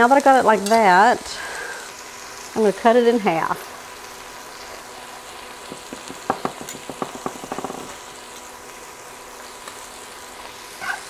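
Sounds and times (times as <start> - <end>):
steak sizzling in a pan: 0.0 - 11.0
knife and fork tapping board: 5.7 - 8.0.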